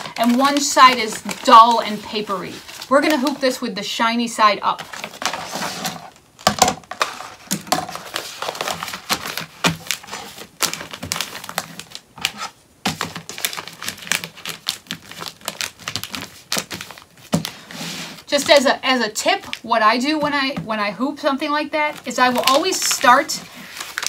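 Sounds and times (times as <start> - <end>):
stabilizer paper crinkling: 0.0 - 3.6, 6.9 - 19.7, 21.9 - 24.0.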